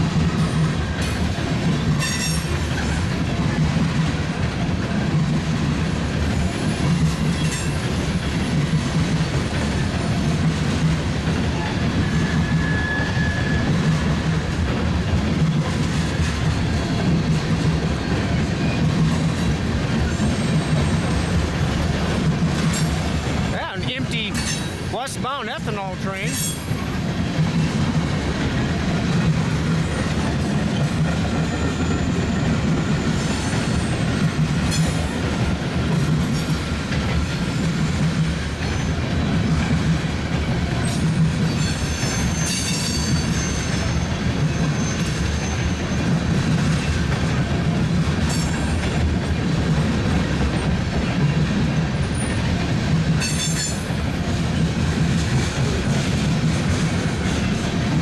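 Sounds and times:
train wheels rumbling on rails: 0.0s - 58.0s
high wheel squeals: 11.5s - 13.9s, 31.3s - 35.1s, 40.9s - 46.1s.

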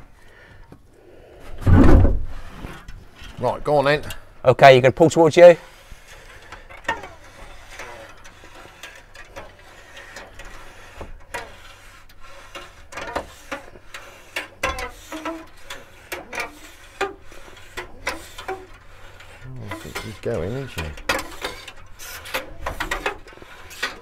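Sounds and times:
wire scraping through adhesive: 5.2s - 24.0s.

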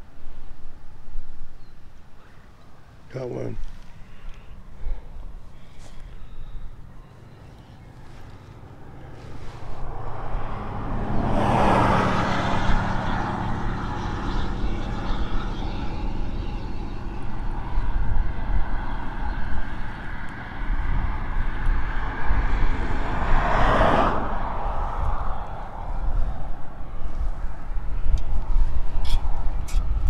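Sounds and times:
vehicle passing: 3.1s - 30.0s
steady low drone: 4.0s - 30.0s
wind on microphone: 8.0s - 30.0s.

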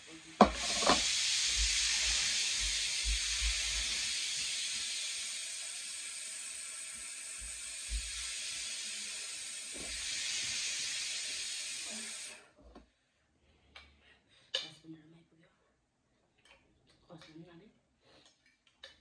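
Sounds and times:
steady hiss: 0.0s - 12.5s.

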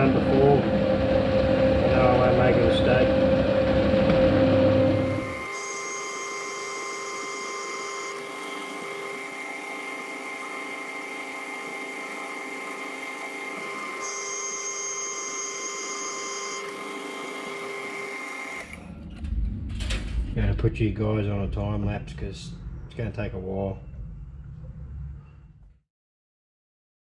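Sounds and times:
lathe gear and motor hum: 0.0s - 19.4s
high-pitched metal cutting: 4.7s - 18.9s.

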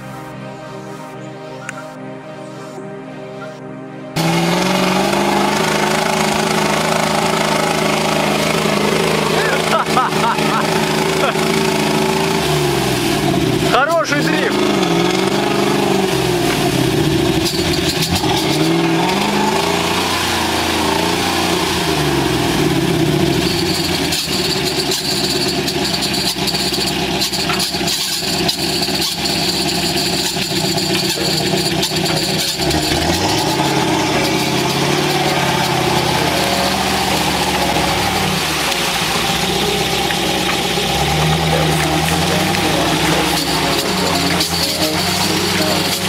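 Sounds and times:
truck engine revving: 4.2s - 46.0s
water splashing: 4.2s - 46.0s.

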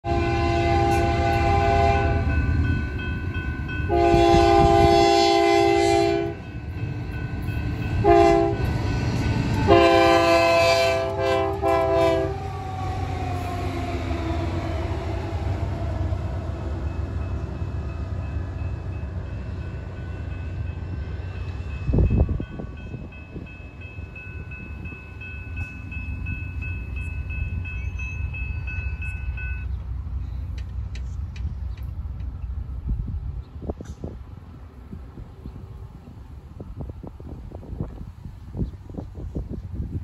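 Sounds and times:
locomotive air horn blasts: 0.0s - 2.4s, 3.8s - 6.5s, 7.9s - 12.7s
locomotive rumble: 0.0s - 40.0s.

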